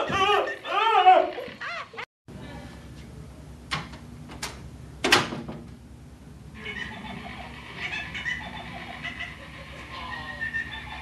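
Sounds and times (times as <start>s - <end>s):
electronic toy giggle: 6.6s - 11.0s.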